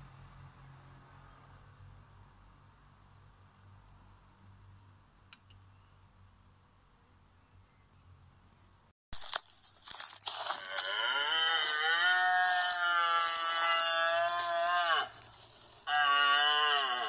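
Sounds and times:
rustling crackles: 9.2 - 17.0
cow mooing: 10.5 - 15.2, 15.8 - 17.0.

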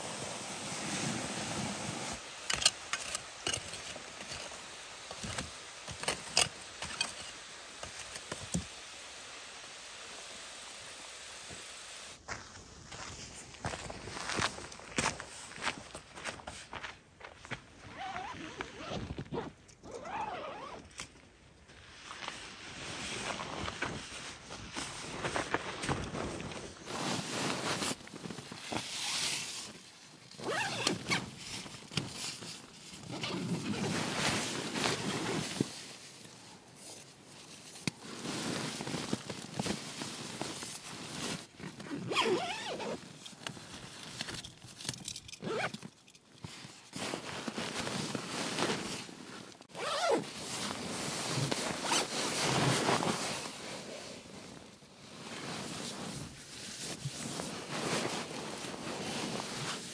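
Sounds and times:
nylon rustling and crinkling: 0.0 - 10.5, 17.4 - 59.9
zippers being pulled: 17.9 - 21.1, 30.4 - 31.3, 41.6 - 43.0, 45.3 - 45.9, 49.7 - 50.3.

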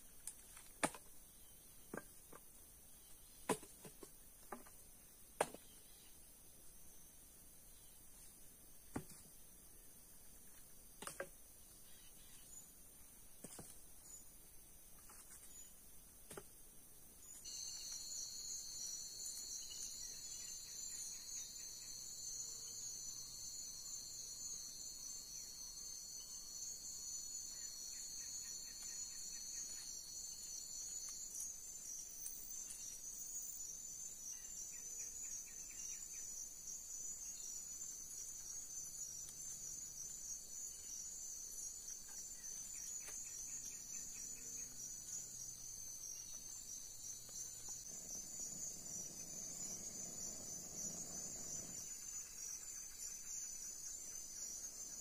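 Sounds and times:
crickets trilling: 17.2 - 55.0
pulsed insect calls: 17.2 - 55.0.

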